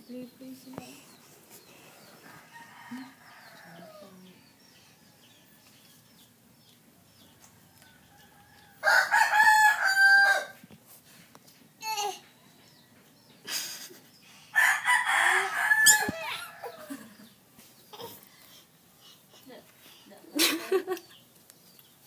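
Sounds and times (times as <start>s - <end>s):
rooster crowing: 2.2s - 5.3s, 7.6s - 10.6s, 14.5s - 17.1s
rooster falling call: 8.8s - 10.6s, 14.6s - 16.9s.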